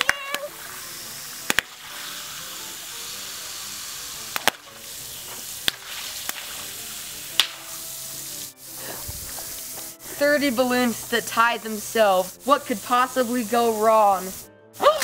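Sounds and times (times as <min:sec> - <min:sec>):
water balloons popping: 0:00.0 - 0:11.6
water hissing from hose: 0:00.0 - 0:15.0.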